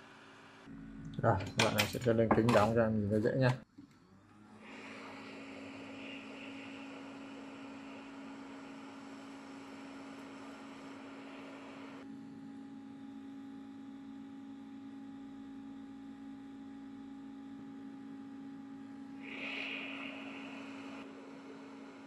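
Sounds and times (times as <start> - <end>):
electrical hum: 0.0 - 22.0
hiss: 4.6 - 12.0, 19.2 - 21.9.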